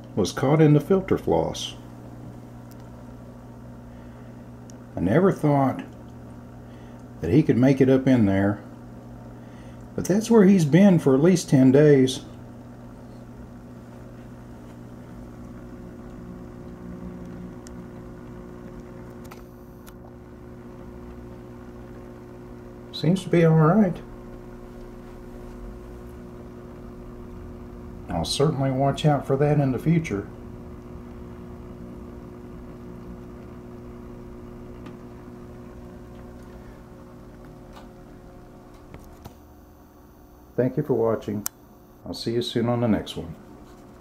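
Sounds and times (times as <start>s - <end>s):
aquarium equipment hum: 0.0s - 44.0s.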